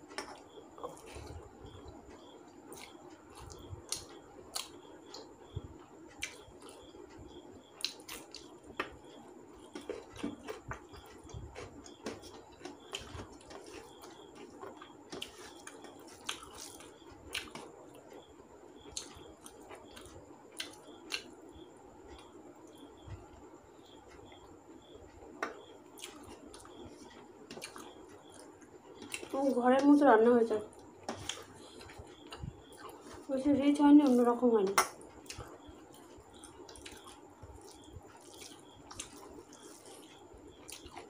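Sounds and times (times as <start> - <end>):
chewing and mouth smacks: 2.7 - 5.3, 6.2 - 6.8, 7.8 - 9.0, 9.6 - 17.8, 25.4 - 29.4, 30.8 - 33.3, 34.8 - 41.0.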